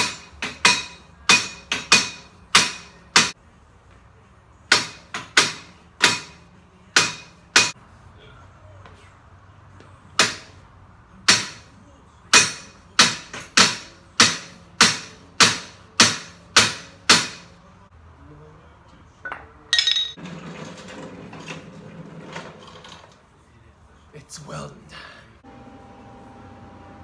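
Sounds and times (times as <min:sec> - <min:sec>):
hammer striking steel tube: 0:00.0 - 0:03.4, 0:04.7 - 0:07.8, 0:12.3 - 0:17.5.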